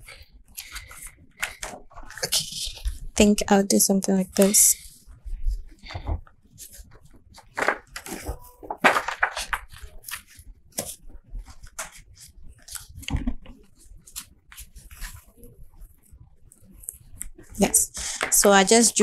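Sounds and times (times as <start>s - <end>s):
paper and cardboard rustling: 7.4s - 15.3s.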